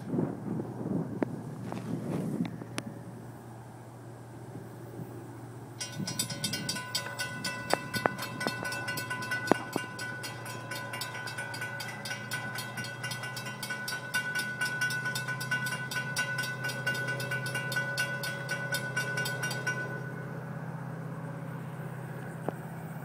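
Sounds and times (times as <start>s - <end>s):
low drone: 0.0s - 23.0s
crossing warning bell ringing: 5.7s - 23.0s.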